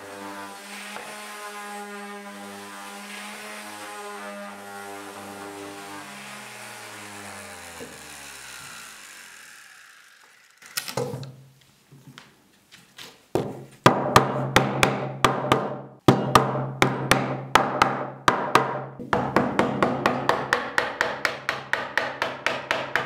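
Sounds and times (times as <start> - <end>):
power tool motor winding down: 0.3 - 11.0.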